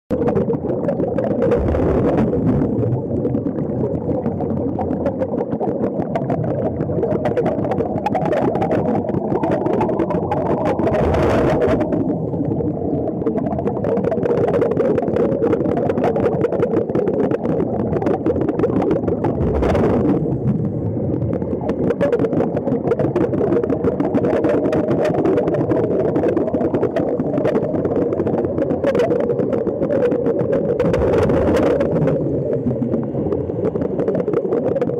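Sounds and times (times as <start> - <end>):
underwater air bubbles rushing: 0.1 - 34.9.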